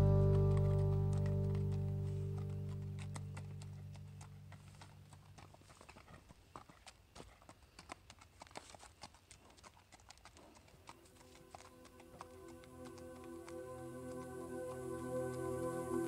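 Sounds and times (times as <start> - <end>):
song playing: 0.0 - 2.8, 12.4 - 16.0
music tune: 0.0 - 4.8, 11.2 - 16.0
horse hooves on gravel: 0.0 - 16.0.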